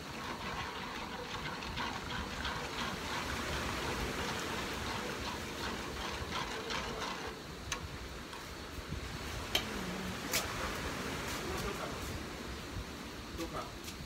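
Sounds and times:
metal spatula scraping a pan: 0:00.0 - 0:07.4.

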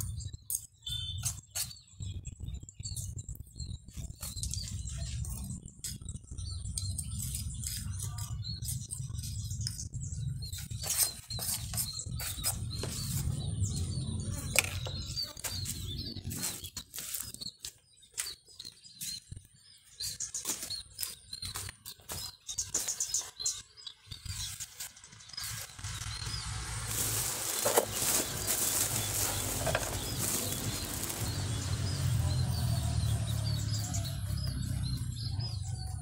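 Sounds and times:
small birds chirping: 0:00.0 - 0:36.0
tool scratching gravel: 0:24.3 - 0:34.2.

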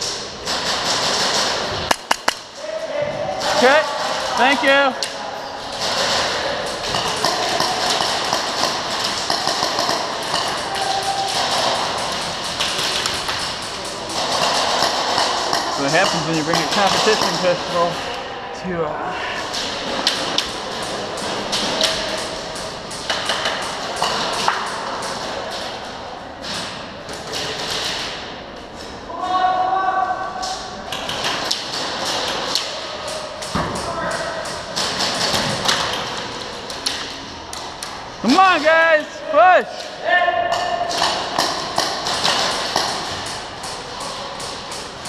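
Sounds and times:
airsoft gunfire: 0:00.4 - 0:02.5, 0:05.8 - 0:17.8, 0:34.7 - 0:36.2, 0:40.9 - 0:43.8
pellets striking walls and props: 0:05.7 - 0:17.9, 0:30.9 - 0:37.2, 0:40.5 - 0:45.0.

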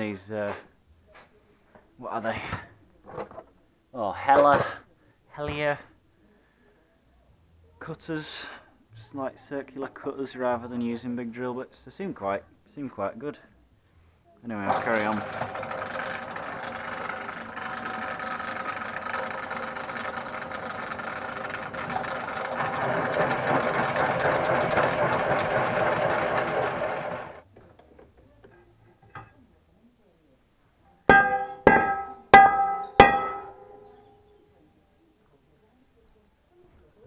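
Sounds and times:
pillar drill cutting steel: 0:14.7 - 0:27.4
ringing metallic knocks: 0:31.1 - 0:34.1.

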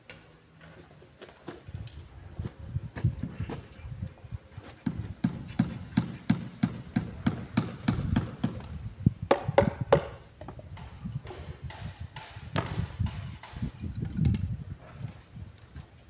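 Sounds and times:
hand tool pounding concrete: 0:04.8 - 0:08.7.

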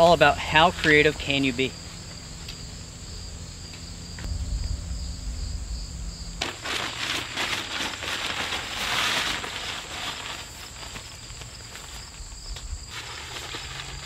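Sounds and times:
insects chirping: 0:00.0 - 0:14.0
low rumble: 0:01.1 - 0:07.6
tent fabric rustling: 0:06.4 - 0:14.0.

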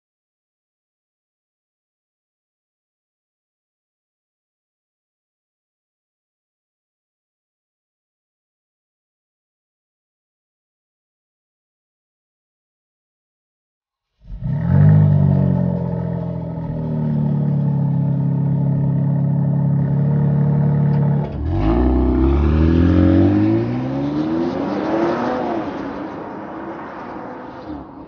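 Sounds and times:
car engine starting and revving: 0:14.2 - 0:28.0.

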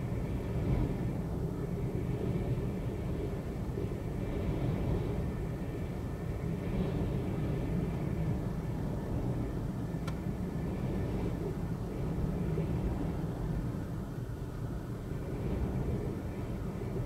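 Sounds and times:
storm wind on microphone: 0:00.0 - 0:17.0.

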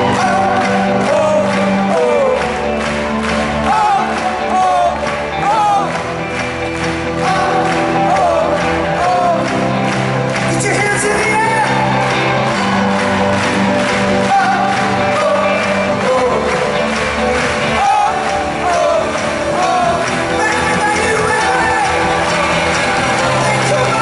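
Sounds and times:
lead singer singing: 0:00.0 - 0:02.8, 0:03.6 - 0:06.1, 0:07.1 - 0:09.7, 0:14.1 - 0:24.0
crowd voices: 0:00.0 - 0:24.0
live pop-rock band: 0:00.0 - 0:24.0.

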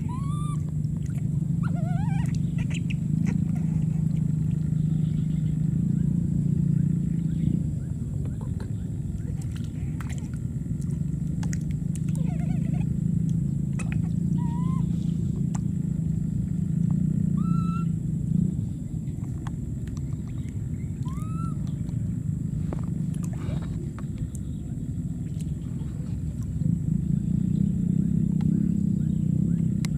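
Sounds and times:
baby monkeys squeaking: 0:00.0 - 0:00.7, 0:01.6 - 0:04.0, 0:12.1 - 0:13.0, 0:13.8 - 0:15.0, 0:17.4 - 0:17.9, 0:21.0 - 0:21.7
steady low rumble: 0:00.0 - 0:29.9.

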